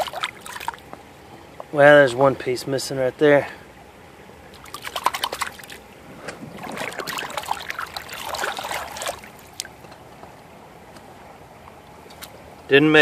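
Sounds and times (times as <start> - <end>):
water sloshing and dripping: 0.0 - 1.7, 4.4 - 10.5
creek water splashing: 0.0 - 2.4, 3.4 - 12.6.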